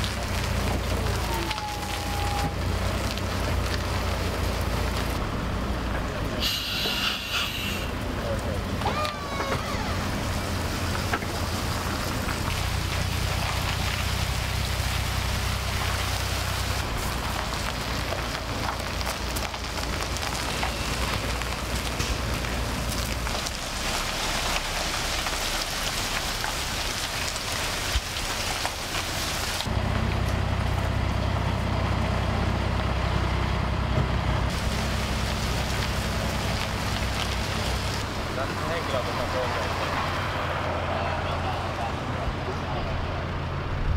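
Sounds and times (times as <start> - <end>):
diesel truck engine rumbling: 0.0 - 43.9
steady hiss: 6.4 - 8.0.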